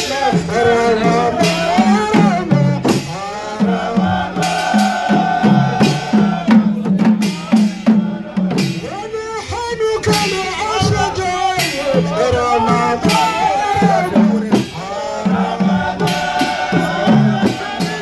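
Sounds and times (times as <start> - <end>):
frame drums beating: 0.0 - 18.0
men chanting in unison: 0.0 - 18.0.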